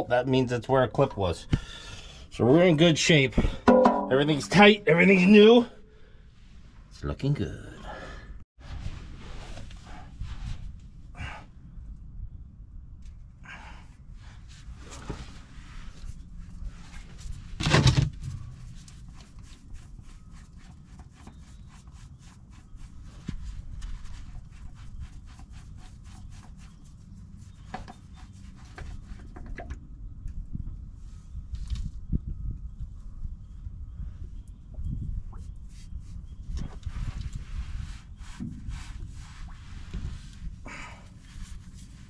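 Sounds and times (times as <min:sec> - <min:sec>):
loud bump: 0:03.7 - 0:04.2.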